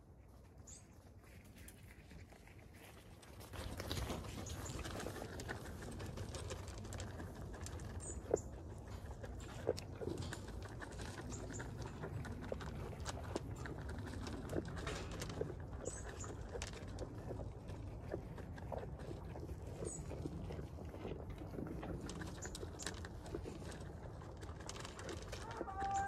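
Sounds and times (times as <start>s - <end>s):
outdoor rustling: 0.0s - 26.0s.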